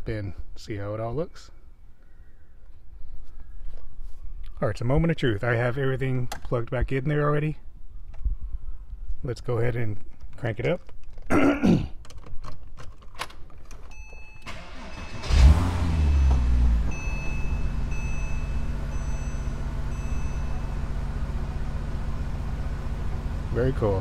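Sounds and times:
car engine starting and idling: 0:13.8 - 0:24.0
brief beep: 0:13.9 - 0:15.3, 0:16.0 - 0:20.9.

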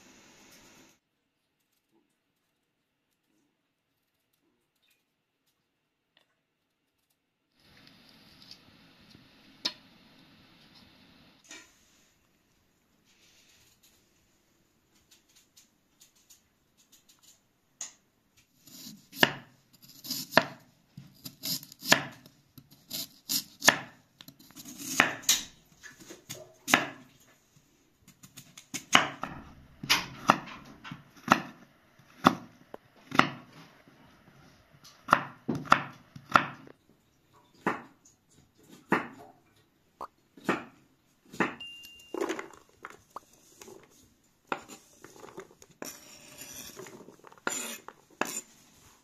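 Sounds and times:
knife cutting on wooden board: 0:18.6 - 0:25.4, 0:44.5 - 0:48.6.

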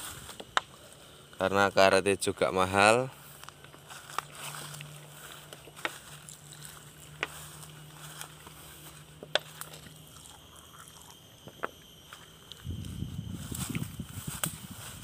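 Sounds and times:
footsteps through dry leaves: 0:00.0 - 0:01.0, 0:03.1 - 0:10.4, 0:12.6 - 0:15.0.

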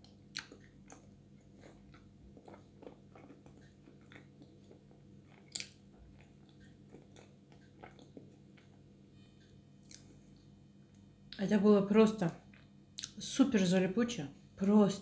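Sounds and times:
closed-mouth chewing: 0:00.0 - 0:08.9, 0:09.8 - 0:10.2, 0:12.5 - 0:13.2.

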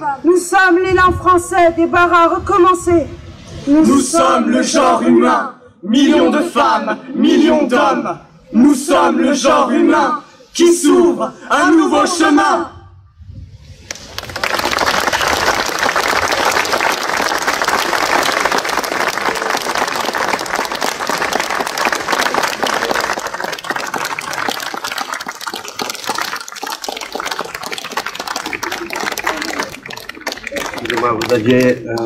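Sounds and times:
audience applauding: 0:13.9 - 0:32.0.

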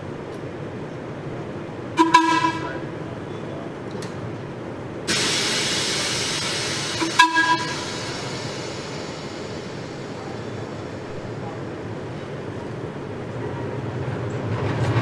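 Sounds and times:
streetcar horn tooting: 0:02.0 - 0:03.0, 0:07.0 - 0:08.0
loud steady hiss: 0:04.9 - 0:13.2.

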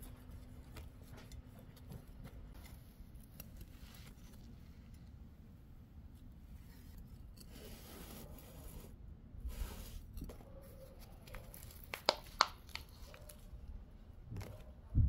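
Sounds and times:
plastic pot crackling: 0:09.6 - 0:13.7.

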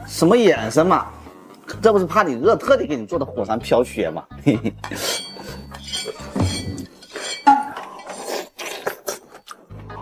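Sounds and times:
chopsticks clinking on porcelain: 0:04.8 - 0:08.4.

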